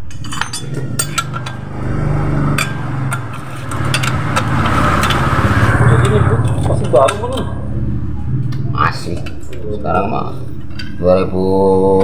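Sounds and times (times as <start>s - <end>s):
steel hand tools clinking: 0.1s - 1.7s, 2.5s - 5.3s.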